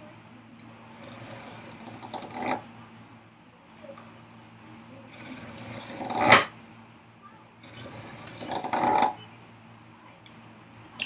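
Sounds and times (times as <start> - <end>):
knife scratching wood: 5.3 - 6.5.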